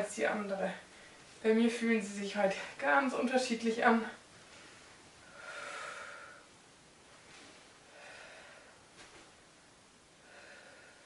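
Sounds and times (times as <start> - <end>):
faint breathing: 5.2 - 6.5, 7.4 - 8.9, 10.2 - 11.0.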